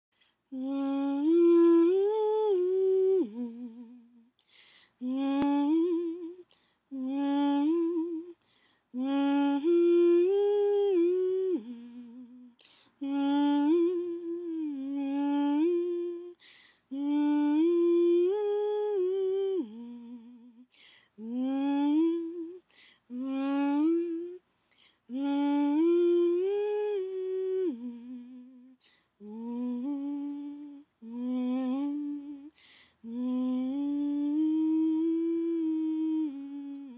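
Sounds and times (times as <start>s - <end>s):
person humming a slow melody: 0.5s - 4.4s, 5.0s - 8.4s, 9.0s - 24.4s, 25.1s - 36.9s.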